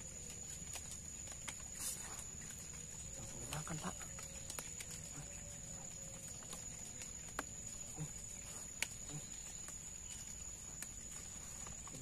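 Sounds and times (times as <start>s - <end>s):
insect drone: 0.0s - 12.0s.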